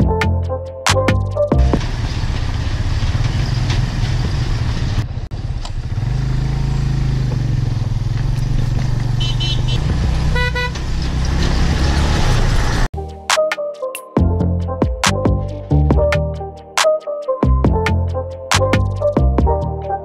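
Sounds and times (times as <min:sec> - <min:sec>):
background music: 0:00.0 - 0:01.8, 0:13.0 - 0:20.0
motorcycle engine running: 0:01.5 - 0:12.9
horn honking: 0:09.1 - 0:11.1.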